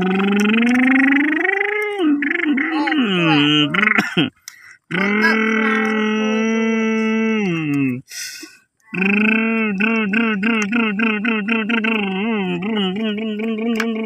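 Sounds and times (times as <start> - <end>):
person imitating truck engine: 0.0 - 8.1, 8.9 - 14.0
quick breath: 8.1 - 8.7.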